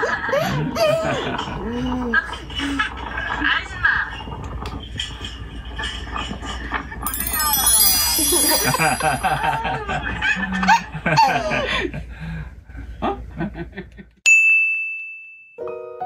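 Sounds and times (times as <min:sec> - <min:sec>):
bright ding: 0:07.1 - 0:09.6.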